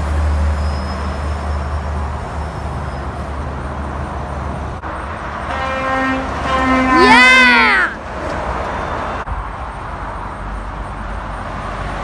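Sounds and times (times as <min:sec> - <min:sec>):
truck passing close: 0:00.0 - 0:12.0
truck horn blast: 0:05.5 - 0:07.6.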